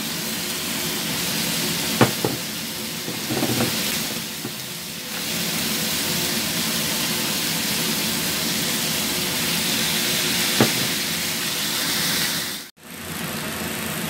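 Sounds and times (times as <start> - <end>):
food sizzling in a wok: 0.0 - 12.7.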